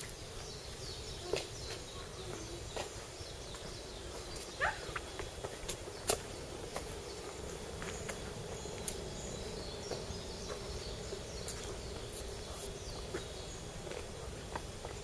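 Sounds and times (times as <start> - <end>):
footsteps on paved path: 0.0 - 15.0
steady background hum: 0.0 - 15.0.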